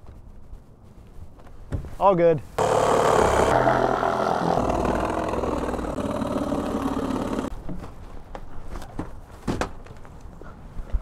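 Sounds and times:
power saw cutting cardboard: 2.6s - 7.5s.

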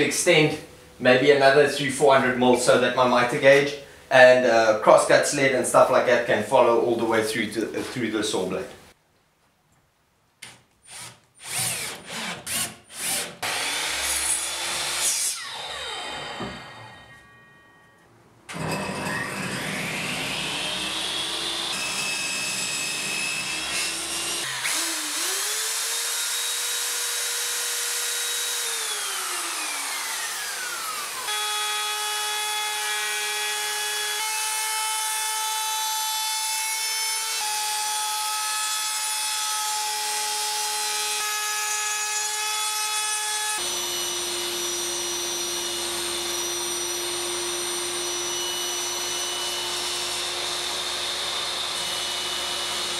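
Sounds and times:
table saw low whine: 13.5s - 33.2s, 43.6s - 52.9s
power tool motor whine: 15.0s - 17.3s, 18.5s - 32.0s, 43.6s - 52.9s
router high whine: 15.2s - 17.9s, 18.5s - 32.9s, 43.6s - 52.9s.

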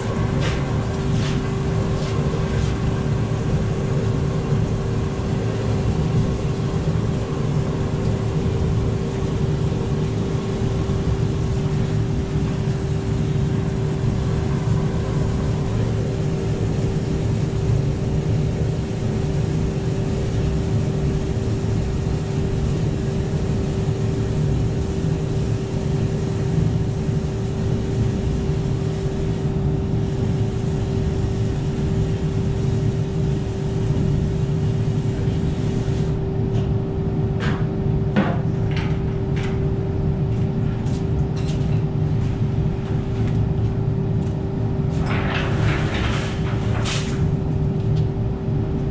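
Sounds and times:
mixer drum rumbling: 0.0s - 35.5s.

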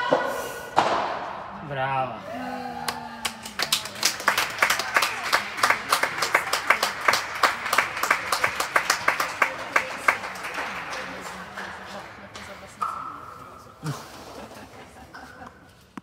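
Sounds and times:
crowd clapping: 2.8s - 12.7s.

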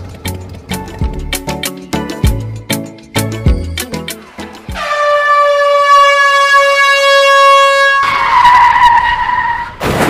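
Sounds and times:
electronic toy train whistle: 4.7s - 9.1s.

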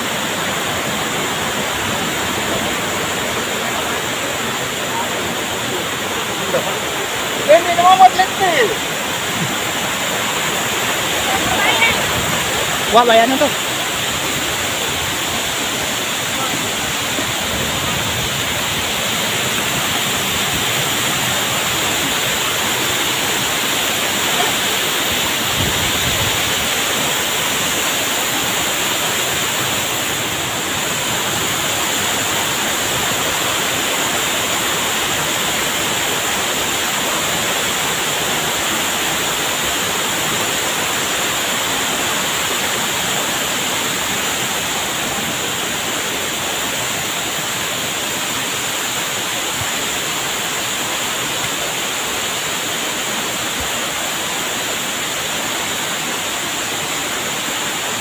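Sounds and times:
waterfall and stream rushing: 0.0s - 58.0s.

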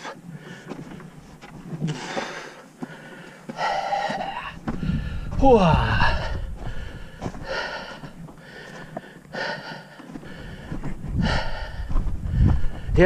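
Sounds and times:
man breathing hard: 0.0s - 1.1s, 1.9s - 13.0s
man groaning: 3.8s - 4.6s, 5.4s - 6.5s.

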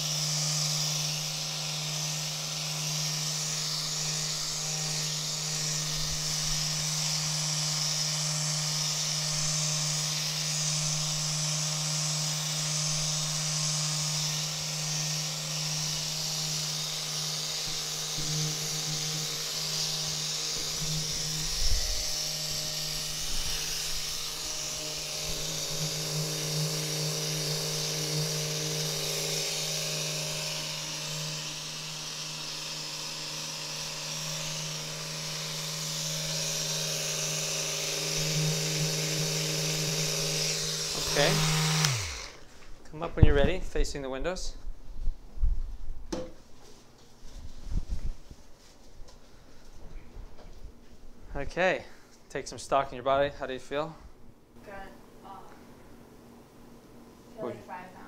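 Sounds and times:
massage device electric buzz: 0.0s - 42.5s
soft knock: 46.1s - 46.4s.

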